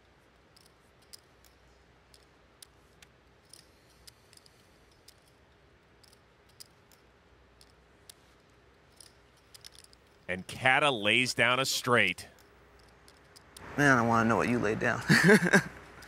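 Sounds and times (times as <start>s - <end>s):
clay poker chips clicking: 0.0s - 10.3s, 11.9s - 13.7s, 15.5s - 16.0s.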